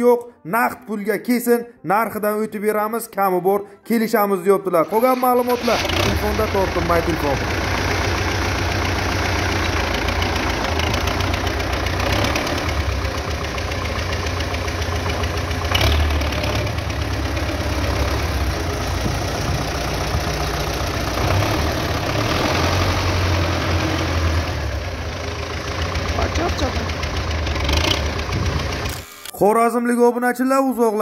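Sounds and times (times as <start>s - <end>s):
tractor diesel engine idling: 4.8s - 29.0s.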